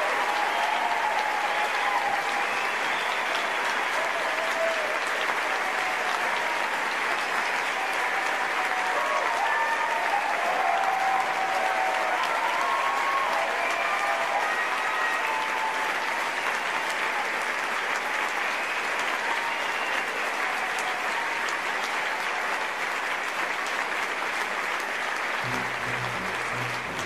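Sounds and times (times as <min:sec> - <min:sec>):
audience applauding: 0:00.0 - 0:27.0
low music: 0:25.4 - 0:27.0.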